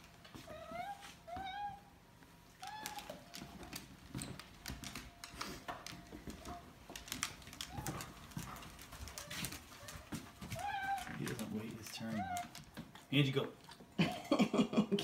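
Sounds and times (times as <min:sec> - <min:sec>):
footsteps on hard floor: 0:00.3 - 0:01.8, 0:02.6 - 0:12.9
cat meowing: 0:00.5 - 0:01.9, 0:02.6 - 0:03.3, 0:09.8 - 0:12.6
cat claws clicking on floor: 0:02.6 - 0:13.0.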